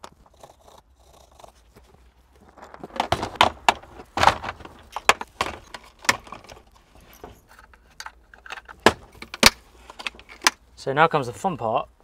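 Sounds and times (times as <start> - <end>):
plastic case latches snapping: 8.0 - 10.6.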